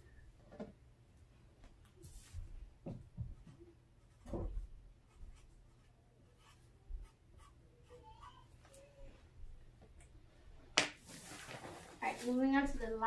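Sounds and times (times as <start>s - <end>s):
marker scratching on paper: 5.0s - 8.6s.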